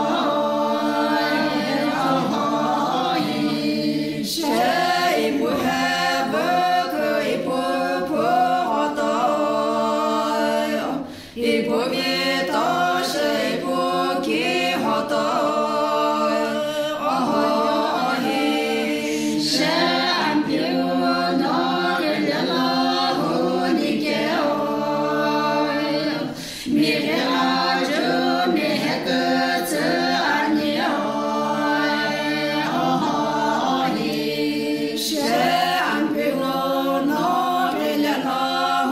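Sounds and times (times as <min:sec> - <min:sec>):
women singing a cappella: 0:00.0 - 0:38.9
singers breathing: 0:11.0 - 0:11.4, 0:26.2 - 0:26.8.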